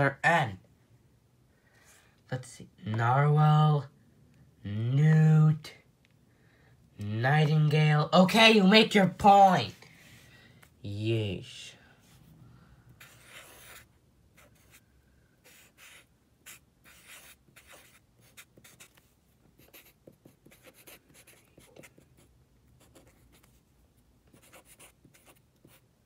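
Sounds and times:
marker drawing on paper: 0:13.0 - 0:23.7, 0:24.3 - 0:25.9.

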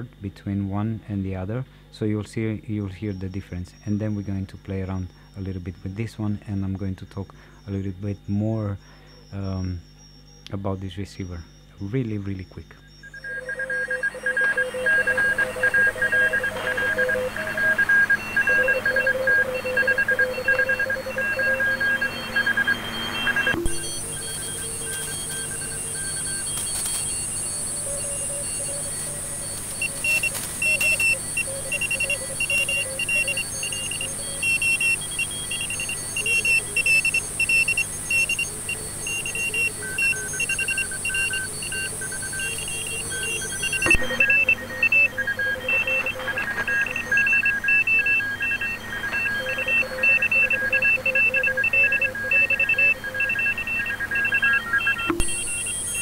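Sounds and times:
receiver hiss: 0:00.0 - 0:56.0
morse code beeping tones: 0:02.4 - 0:56.0.

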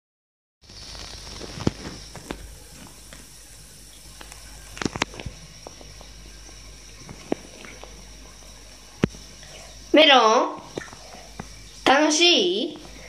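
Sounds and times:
steady hiss: 0:00.6 - 0:13.0
small water splashes: 0:10.6 - 0:11.8.

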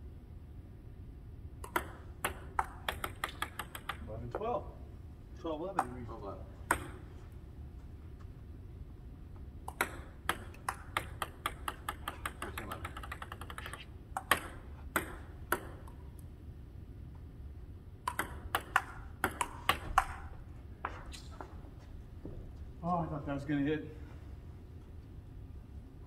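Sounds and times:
paddle hitting table tennis ball: 0:01.6 - 0:04.1, 0:09.7 - 0:16.0, 0:18.0 - 0:20.3
table tennis ball bouncing: 0:01.6 - 0:04.5, 0:05.8 - 0:06.0, 0:06.6 - 0:07.1, 0:09.6 - 0:16.1, 0:18.0 - 0:21.0.

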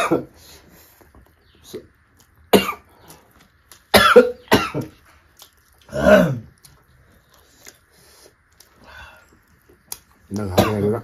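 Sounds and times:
person clearing throat: 0:00.0 - 0:00.3, 0:02.5 - 0:02.9, 0:03.9 - 0:05.0, 0:05.9 - 0:06.5, 0:10.5 - 0:11.0
person coughing: 0:00.0 - 0:00.3, 0:02.5 - 0:02.9, 0:03.9 - 0:05.0, 0:10.5 - 0:11.0.

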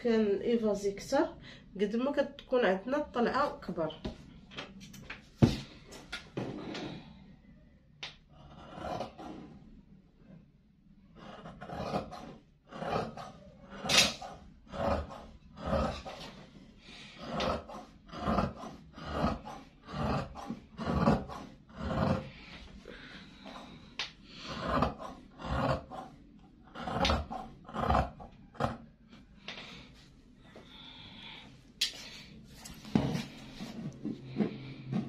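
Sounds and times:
shears snipping cloth: 0:13.0 - 0:14.4.

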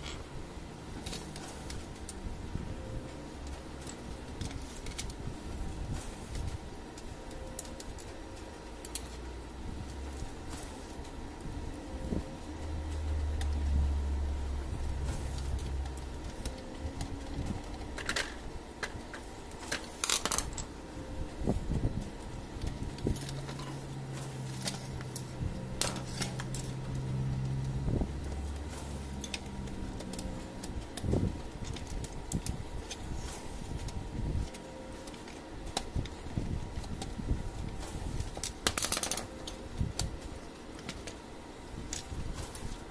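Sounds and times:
steady low hum: 0:00.0 - 0:42.9
metal and plastic clicks and rattles: 0:15.0 - 0:20.8, 0:33.8 - 0:41.2.

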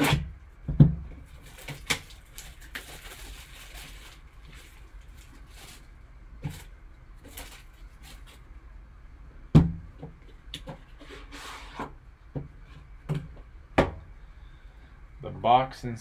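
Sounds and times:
tin sliding out of cardboard box: 0:11.0 - 0:11.9.

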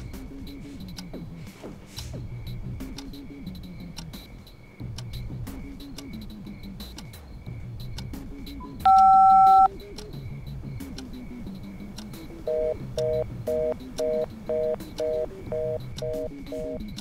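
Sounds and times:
background music: 0:00.0 - 0:17.0
telephone busy signal: 0:08.8 - 0:09.7, 0:12.5 - 0:16.8
two-note keypad tone: 0:08.9 - 0:09.7.

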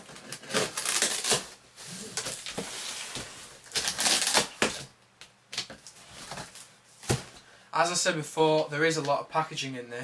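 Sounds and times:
knife cutting packing tape: 0:00.0 - 0:01.6, 0:03.6 - 0:04.9
tape tearing: 0:00.0 - 0:04.9.

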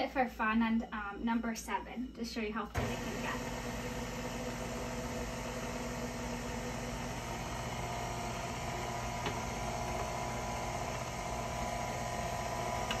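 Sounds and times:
stand mixer motor running: 0:02.8 - 0:13.0.

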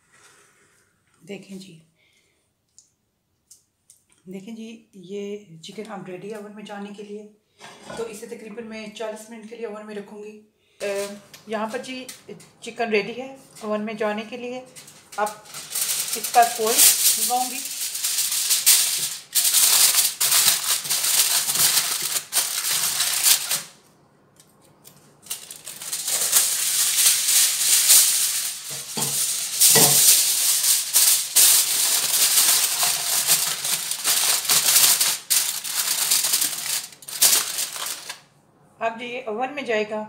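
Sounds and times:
aluminium foil crinkling: 0:10.8 - 0:12.3, 0:14.6 - 0:23.8, 0:24.4 - 0:38.3.

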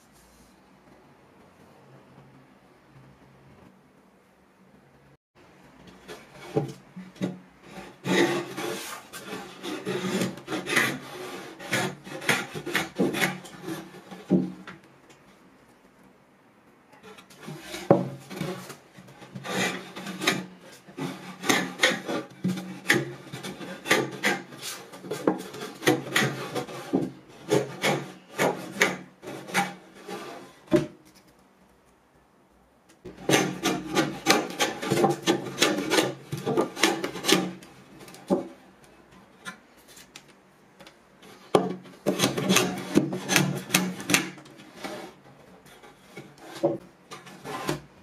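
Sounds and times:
hand plane shaving wood: 0:07.6 - 0:14.6, 0:17.0 - 0:30.6, 0:33.1 - 0:37.6, 0:42.0 - 0:47.9.

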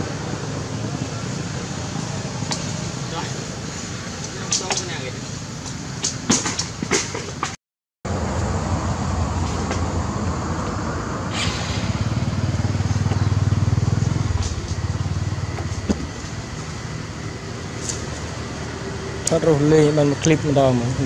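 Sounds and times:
small motorbike engine running: 0:11.3 - 0:21.0.

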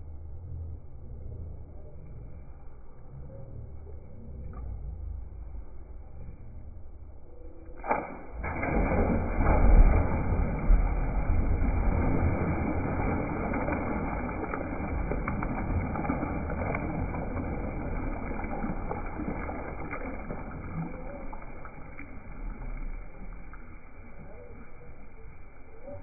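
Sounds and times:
slow-motion pool splash: 0:00.0 - 0:26.0
water churning: 0:07.8 - 0:26.0.

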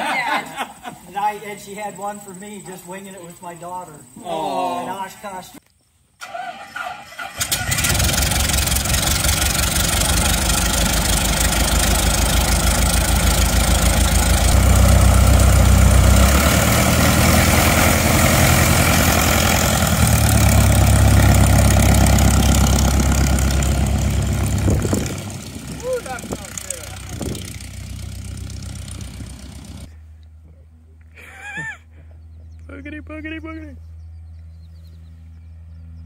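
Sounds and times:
aircraft piston engine running: 0:07.4 - 0:29.9.

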